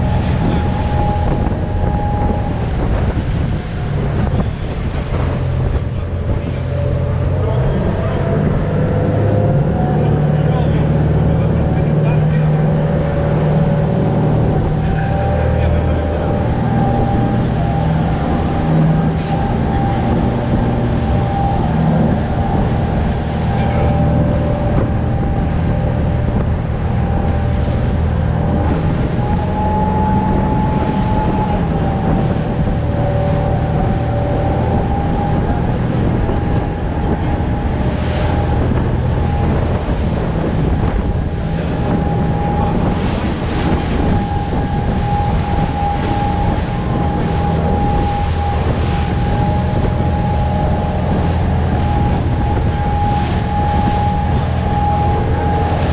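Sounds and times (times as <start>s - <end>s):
churning wake rushing: 0.0s - 55.9s
motorboat engine whining: 0.0s - 55.9s
wind buffeting microphone: 0.0s - 55.9s.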